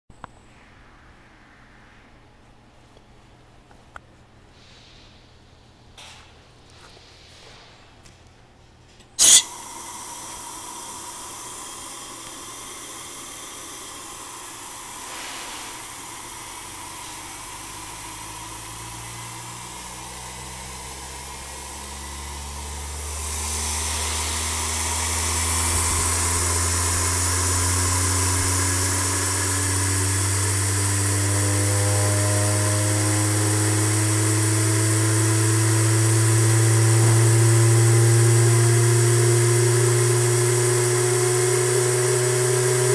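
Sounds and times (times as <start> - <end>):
turbine hum rising in pitch: 0.1 - 3.8, 9.2 - 42.9
blast of air: 0.4 - 2.9, 9.2 - 42.9
steady air hiss: 9.2 - 42.9.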